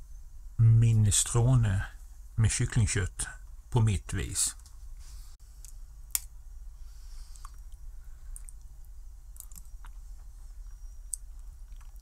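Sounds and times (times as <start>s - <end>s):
steady low hum: 0.0s - 12.0s
quiet chewing and sipping: 7.0s - 12.0s.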